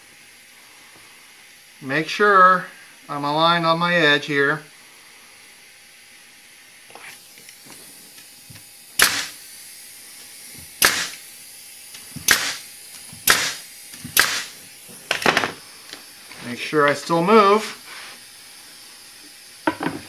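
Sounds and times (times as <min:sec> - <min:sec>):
pneumatic nailer firing: 0:08.5 - 0:09.5, 0:10.5 - 0:15.7.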